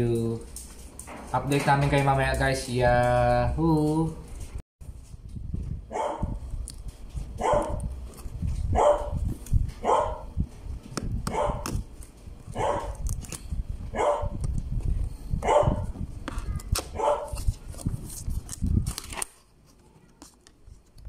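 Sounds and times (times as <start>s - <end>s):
dog barking: 5.9s - 6.4s, 7.4s - 7.8s, 8.7s - 9.2s, 9.8s - 10.3s, 11.3s - 11.6s, 12.6s - 13.0s, 13.9s - 14.4s, 15.4s - 15.9s, 16.9s - 17.4s.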